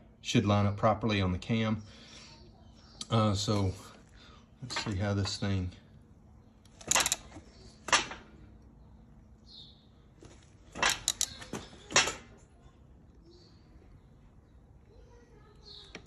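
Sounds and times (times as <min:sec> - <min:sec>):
hand ratchet clicking: 0:06.7 - 0:07.3, 0:10.8 - 0:11.4.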